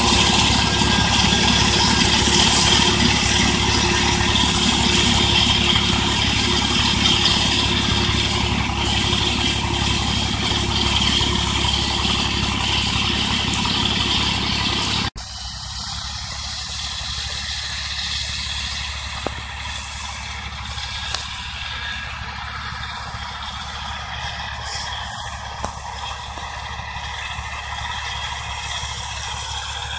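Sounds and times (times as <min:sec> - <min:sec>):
distant tractor engine: 0:00.0 - 0:29.9
high steady whine: 0:00.0 - 0:29.9
tractor diesel engine running: 0:00.0 - 0:29.9.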